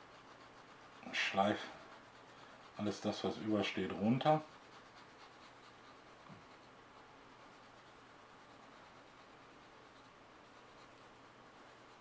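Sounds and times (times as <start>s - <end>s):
sanding stick rubbing plastic: 0.0s - 12.0s.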